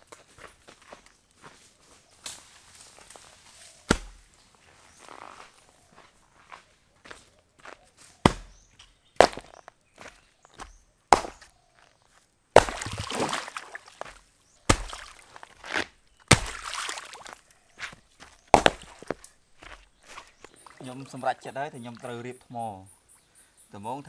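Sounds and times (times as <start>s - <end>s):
blade chopping wood: 3.9s - 4.3s, 8.2s - 8.6s, 9.2s - 9.6s, 10.6s - 11.5s, 12.6s - 17.3s, 18.5s - 19.3s.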